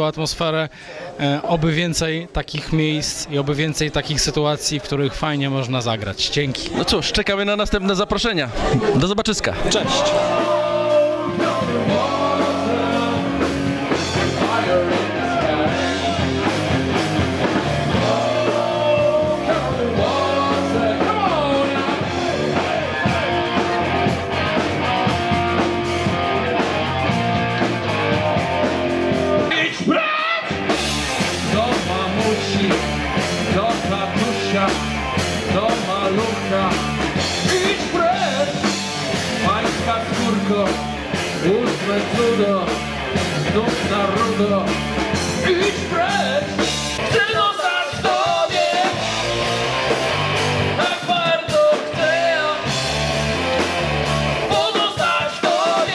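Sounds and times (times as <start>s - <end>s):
electric guitars: 9.6s - 55.9s
person singing: 9.7s - 16.5s, 17.8s - 23.8s, 31.4s - 38.7s, 50.8s - 52.8s, 54.5s - 55.9s.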